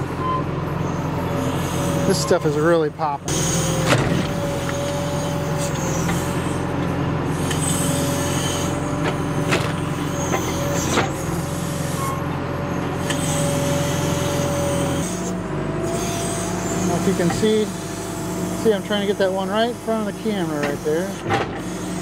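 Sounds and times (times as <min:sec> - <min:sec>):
diesel engine running under load: 0:00.0 - 0:22.0.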